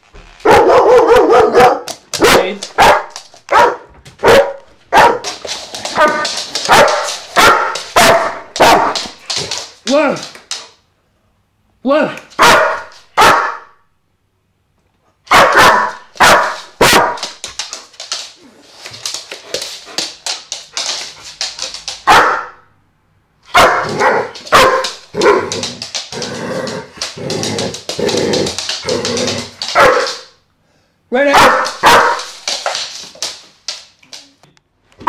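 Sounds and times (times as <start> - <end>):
dog barking loudly: 0.4 - 9.2, 12.4 - 13.8, 15.3 - 17.4, 22.0 - 22.7, 23.5 - 25.6, 29.7 - 30.4, 31.2 - 32.4.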